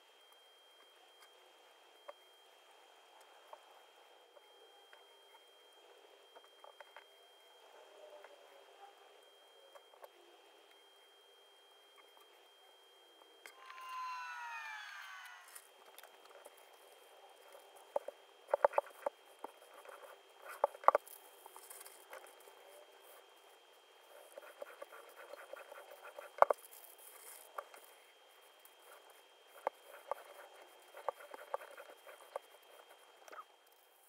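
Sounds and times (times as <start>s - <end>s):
faint high tone: 13.5s - 15.6s.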